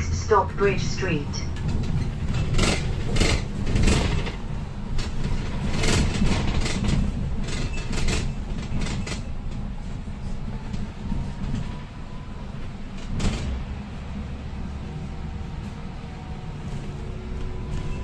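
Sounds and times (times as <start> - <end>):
bus engine and road rumble: 0.0 - 18.0
rattles and knocks of bus body: 1.5 - 11.8, 12.6 - 15.0.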